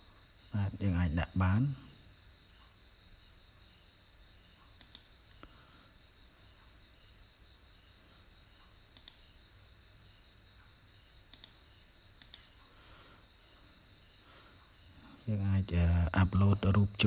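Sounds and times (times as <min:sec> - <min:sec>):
computer mouse clicks: 0:04.6 - 0:05.5, 0:08.6 - 0:09.4, 0:11.3 - 0:12.7.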